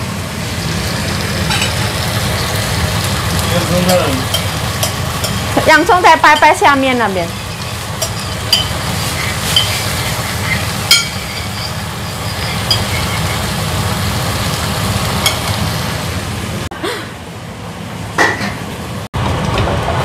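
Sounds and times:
chicken stir-frying in a wok: 0.0 - 16.7
metal spatula clinking on pan: 3.8 - 5.5, 7.3 - 13.4.

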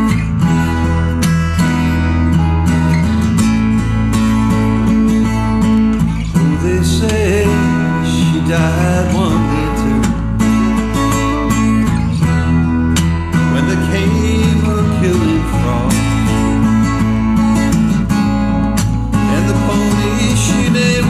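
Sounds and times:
steady bass line: 0.0 - 21.0
strummed acoustic guitars: 0.0 - 21.0.

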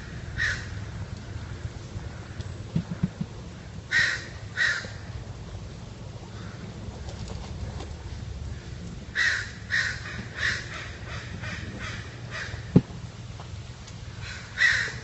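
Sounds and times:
crow cawing: 0.0 - 0.8, 3.9 - 5.1, 6.3 - 6.7, 8.5 - 12.8, 14.2 - 15.0
steady low hum: 0.0 - 15.0.

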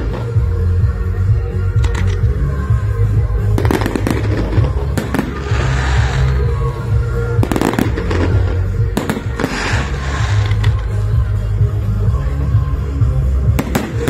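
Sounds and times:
loud music with strong bass: 0.0 - 14.0
firework crackling: 3.4 - 11.5, 13.2 - 14.0
firework bangs: 3.6 - 6.5, 7.4 - 10.8.

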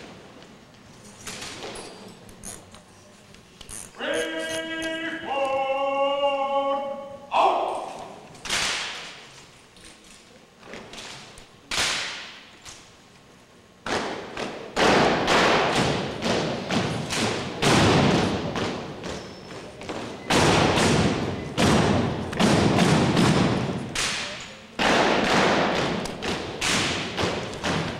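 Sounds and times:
rifles slapped and struck: 7.8 - 10.2, 10.9 - 12.9, 13.8 - 27.9.

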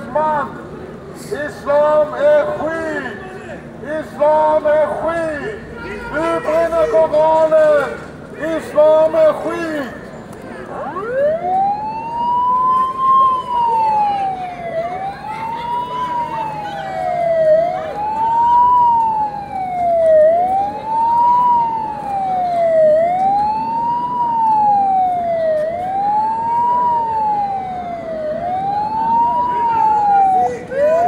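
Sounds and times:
siren wailing: 10.6 - 31.0.

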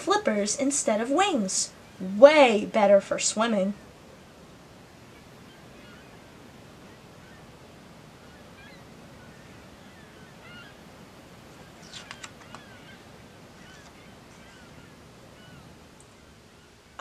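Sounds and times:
faint chirping bird calls: 0.0 - 2.2, 3.2 - 17.0
low hiss: 0.0 - 17.0
page handling clicks: 11.9 - 12.6.

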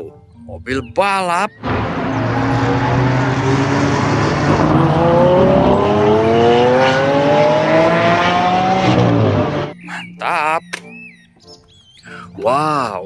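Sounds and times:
car engine accelerating: 1.6 - 9.8.

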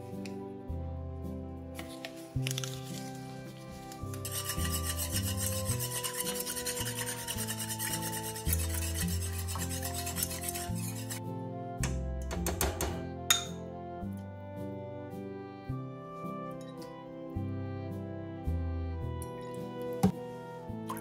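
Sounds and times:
whisk scraping a metal pan: 3.7 - 11.2.

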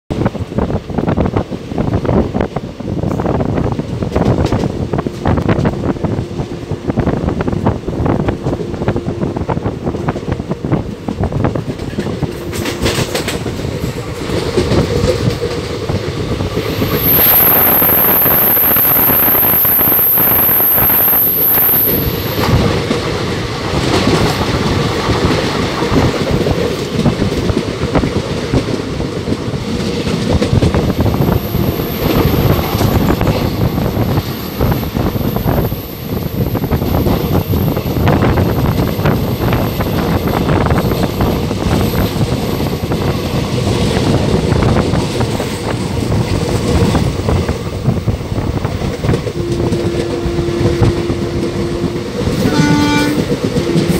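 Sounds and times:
train wheels on rails: 0.1 - 53.9
high thin whine: 16.6 - 22.7.

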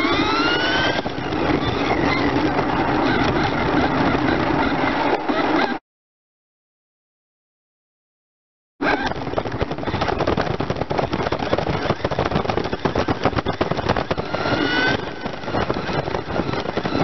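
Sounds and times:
motor whine: 0.0 - 5.7
remote-control car rattle: 0.0 - 5.8, 8.8 - 17.0.

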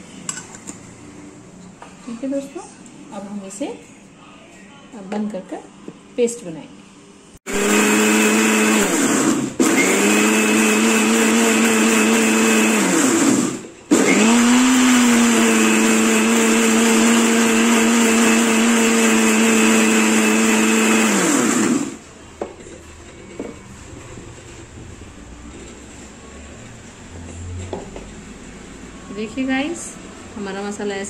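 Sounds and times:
mixer grinder motor whining: 7.5 - 22.0.

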